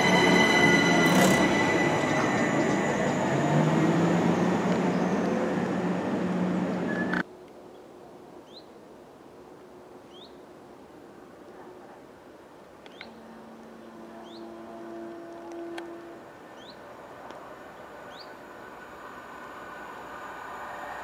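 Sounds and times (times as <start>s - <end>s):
electric train traction whine: 0.0s - 7.2s, 17.0s - 21.0s
rail noise: 0.0s - 7.3s, 11.2s - 21.0s.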